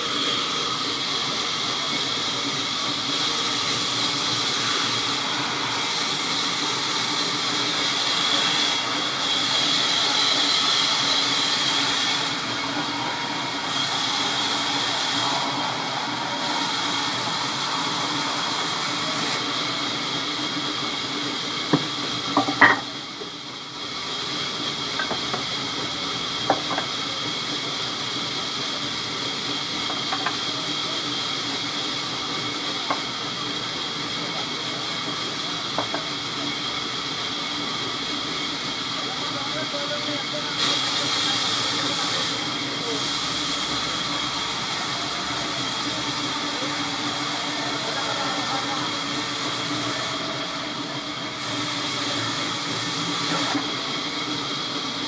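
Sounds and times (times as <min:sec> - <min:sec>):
band saw cutting wood: 0:03.3 - 0:15.8.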